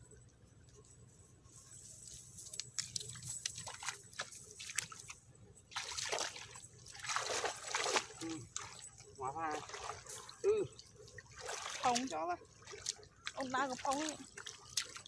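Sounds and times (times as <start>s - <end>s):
water dripping: 2.8s - 15.0s
water splashing from wading: 5.7s - 15.0s.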